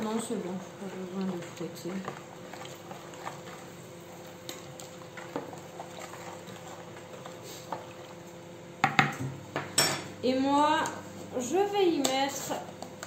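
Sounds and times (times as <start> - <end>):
spoon swishing liquid: 0.9 - 8.2.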